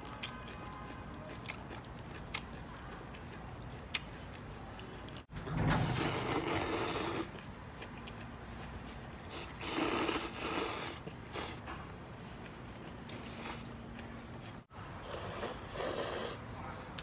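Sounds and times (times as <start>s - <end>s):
person slurping noodles: 5.9s - 7.3s, 9.3s - 11.6s, 15.0s - 16.4s.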